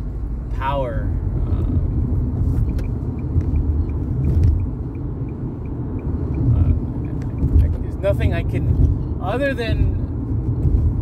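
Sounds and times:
car interior road and engine rumble: 0:00.0 - 0:11.0
faint regular ticking: 0:02.6 - 0:08.2.

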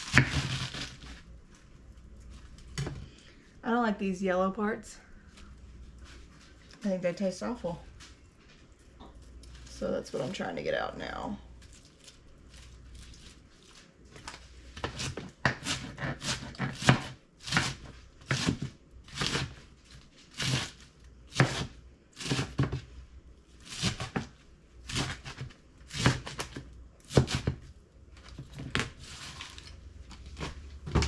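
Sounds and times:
knife chopping lettuce: 0:00.0 - 0:01.2, 0:14.7 - 0:22.9, 0:23.6 - 0:31.0.

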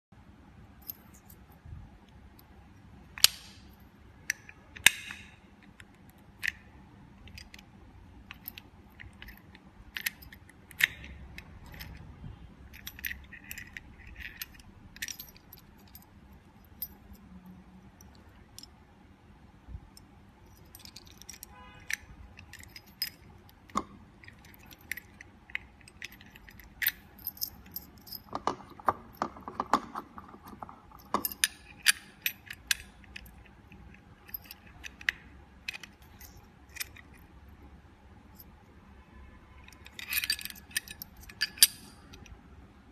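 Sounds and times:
metallic clicks of a lock: 0:02.1 - 0:16.1, 0:20.0 - 0:37.2, 0:39.6 - 0:42.4.

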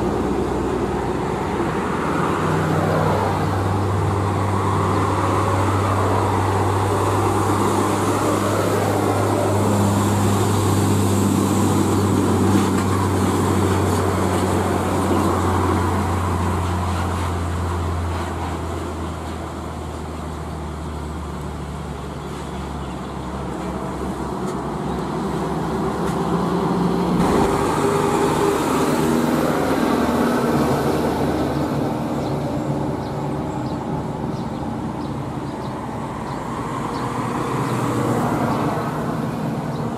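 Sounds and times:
diesel truck engine droning: 0:23.4 - 0:36.6.

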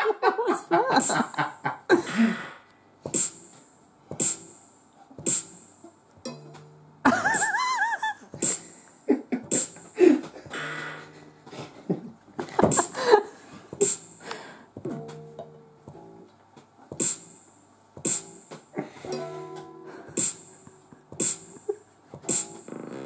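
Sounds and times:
sharp percussive synth hits: 0:03.1 - 0:03.6, 0:04.2 - 0:06.5, 0:08.4 - 0:08.8, 0:09.5 - 0:11.2, 0:13.8 - 0:15.4, 0:17.0 - 0:18.5, 0:19.1 - 0:22.7.

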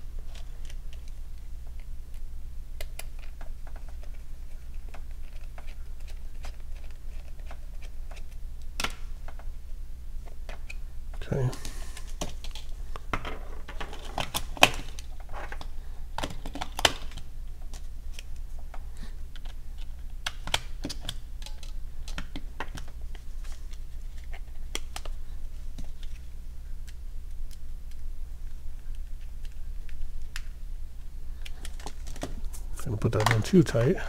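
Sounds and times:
plastic snaps: 0:04.8 - 0:09.5
plastic parts clicking: 0:19.3 - 0:25.2.

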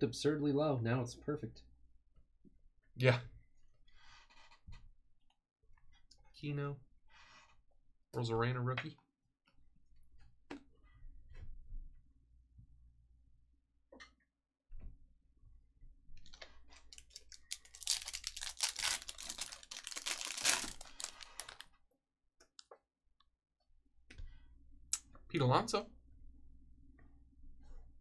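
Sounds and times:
foil wrapper tearing: 0:16.9 - 0:21.7.

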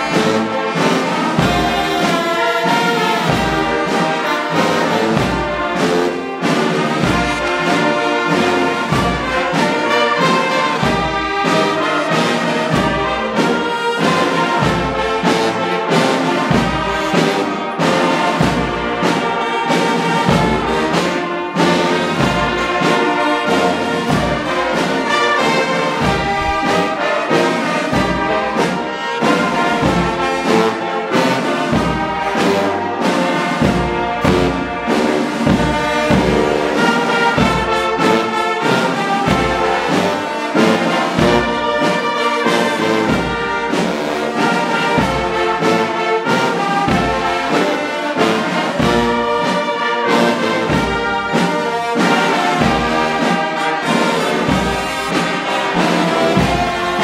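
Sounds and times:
brass band playing: 0:00.0 - 0:57.0.

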